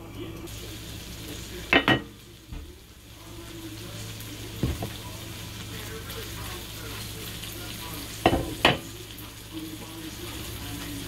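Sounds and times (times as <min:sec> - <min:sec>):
food sizzling in a wok: 0:00.0 - 0:11.0.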